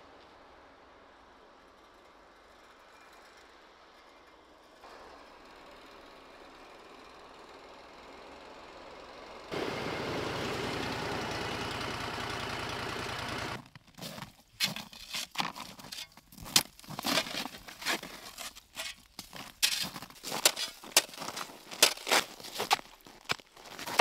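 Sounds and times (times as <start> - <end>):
snowmobile engine running: 9.5 - 13.6
shovel crunching into packed snow: 13.3 - 24.0.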